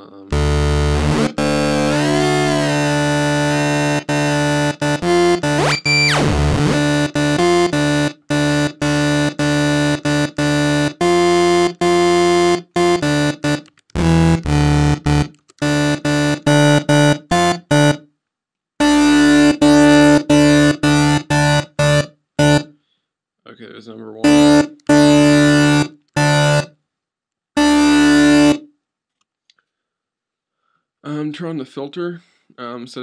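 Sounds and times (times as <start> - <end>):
synthesizer bass notes: 0.0 - 18.0, 18.8 - 22.6, 24.2 - 26.7, 27.6 - 28.6.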